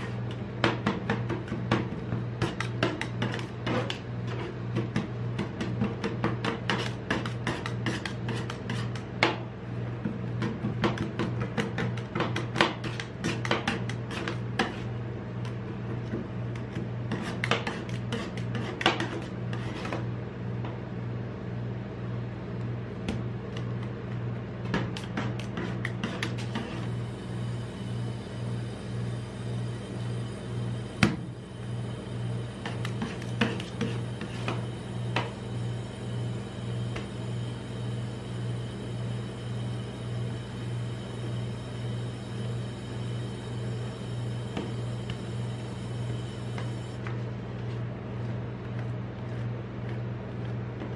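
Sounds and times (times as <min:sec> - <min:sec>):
steady low hum: 0:00.0 - 0:50.9
metal spatulas scraping ice cream: 0:02.4 - 0:04.6, 0:06.5 - 0:09.0, 0:17.1 - 0:20.0.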